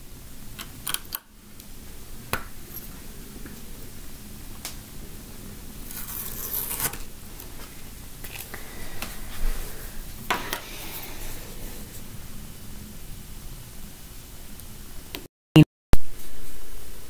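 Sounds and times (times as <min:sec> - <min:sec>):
tape peeling off: 0:05.8 - 0:07.1.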